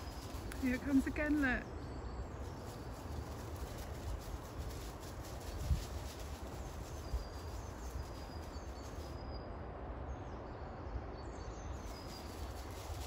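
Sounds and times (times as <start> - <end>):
faint bird chirps: 0.0 - 13.0.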